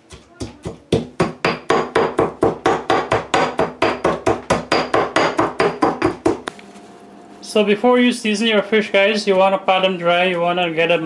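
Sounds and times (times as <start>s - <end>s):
stone pestle pounding in mortar: 0.0s - 6.4s.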